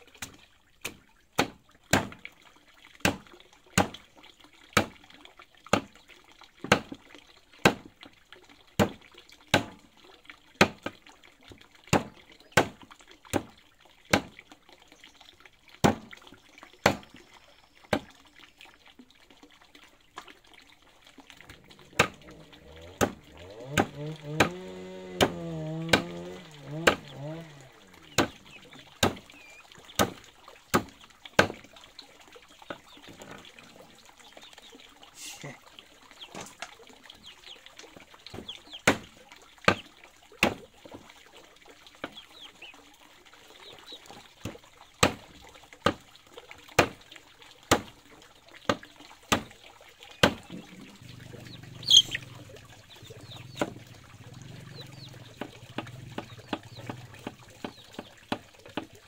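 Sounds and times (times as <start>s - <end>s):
sharp knocks: 21.7s - 29.3s, 30.0s - 31.6s.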